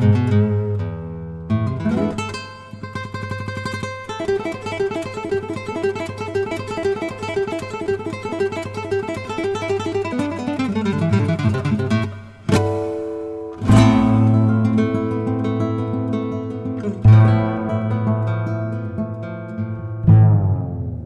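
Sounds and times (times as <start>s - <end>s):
acoustic guitar picking: 0.0s - 21.0s
sharp guitar strum: 4.3s - 15.3s, 20.0s - 21.0s.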